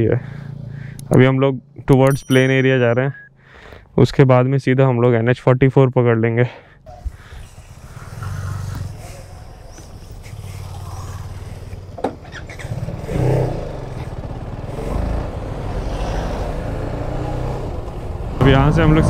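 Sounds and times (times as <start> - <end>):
road and wind noise: 0.0 - 2.7, 6.8 - 19.0
motorcycle engine running: 8.0 - 17.0.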